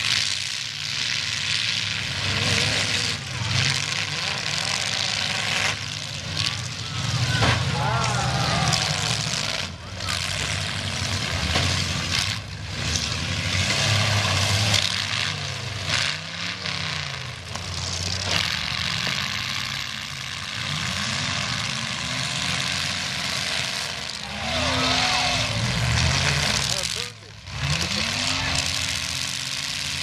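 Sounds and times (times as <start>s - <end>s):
car engines revving: 0.0s - 30.0s
cars colliding bangs: 7.0s - 9.8s.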